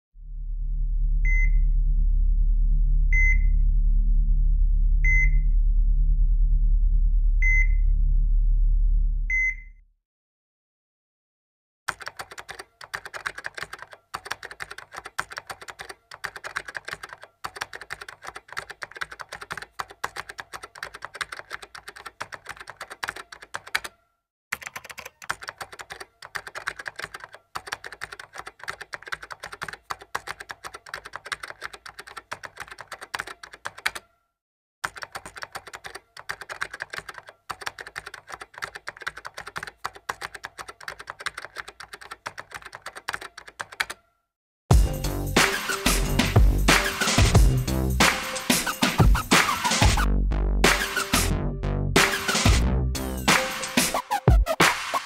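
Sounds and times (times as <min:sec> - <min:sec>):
rapid keyboard typing clicks: 0:11.9 - 0:34.1, 0:34.8 - 0:44.1.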